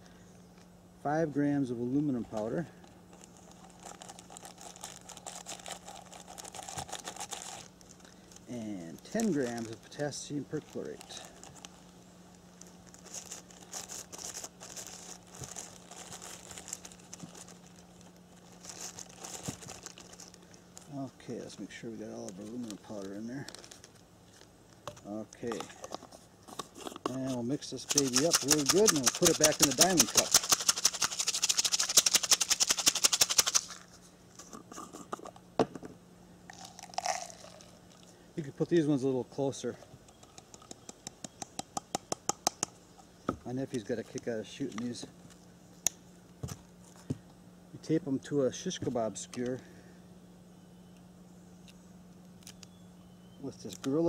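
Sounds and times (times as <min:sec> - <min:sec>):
plastic bag crinkling: 0:03.1 - 0:21.1, 0:22.1 - 0:24.5, 0:26.7 - 0:34.0, 0:36.5 - 0:38.1
gravel rattling in shaken container: 0:03.2 - 0:11.8, 0:12.6 - 0:20.9, 0:26.7 - 0:34.0.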